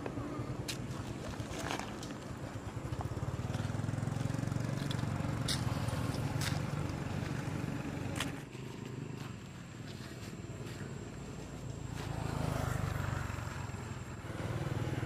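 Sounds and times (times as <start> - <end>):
small engine running: 1.9 - 9.6, 11.9 - 15.0.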